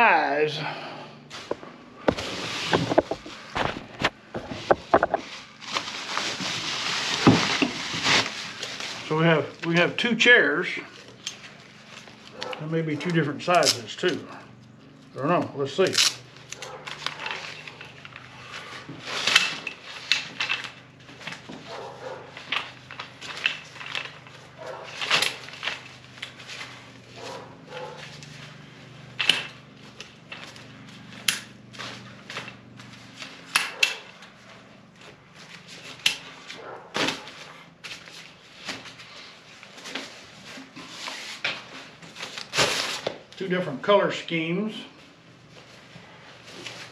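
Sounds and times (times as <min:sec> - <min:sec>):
chair frame snapping and clicking: 0:19.2 - 0:26.4, 0:29.2 - 0:30.5, 0:33.4 - 0:34.2, 0:35.9 - 0:36.3.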